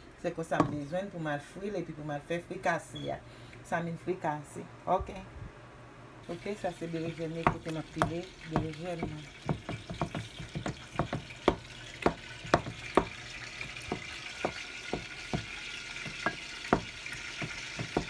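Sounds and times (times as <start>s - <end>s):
wooden pestle pounding in bowl: 7.4s - 18.0s.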